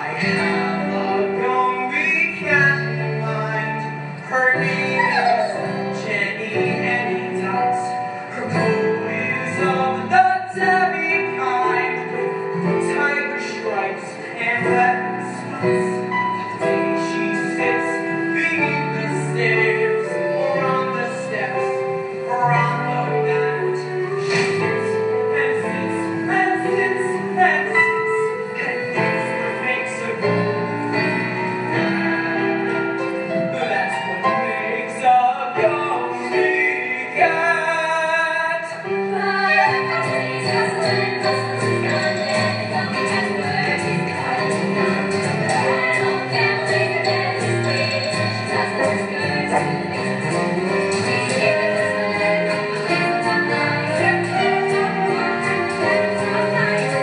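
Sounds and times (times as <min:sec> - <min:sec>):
piano accompaniment: 0:00.0 - 0:57.0
women singing: 0:38.9 - 0:57.0.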